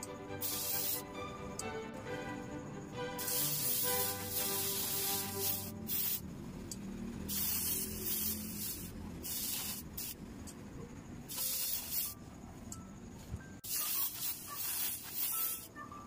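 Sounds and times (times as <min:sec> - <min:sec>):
airbrush spraying hiss: 0:00.4 - 0:01.1, 0:03.2 - 0:06.2, 0:07.2 - 0:10.2, 0:11.3 - 0:12.2, 0:13.6 - 0:15.7.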